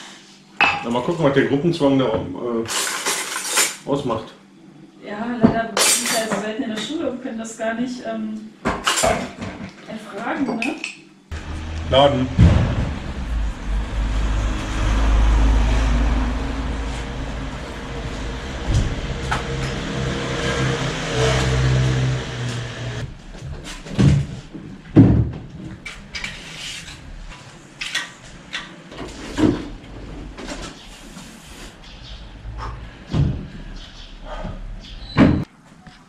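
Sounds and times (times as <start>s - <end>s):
vehicle engine humming: 11.3s - 23.4s
wooden cabinet knocks and thuds: 12.3s - 13.2s, 23.9s - 25.7s, 33.1s - 33.5s.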